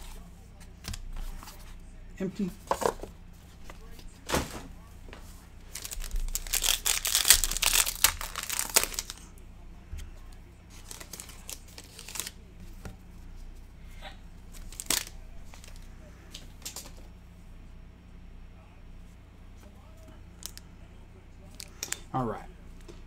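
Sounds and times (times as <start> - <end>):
cards rustling: 2.4 - 9.4, 10.0 - 13.4, 14.4 - 17.1, 21.4 - 22.1
foil wrapper tearing and crinkling: 5.6 - 9.2, 10.7 - 12.4, 14.6 - 15.8.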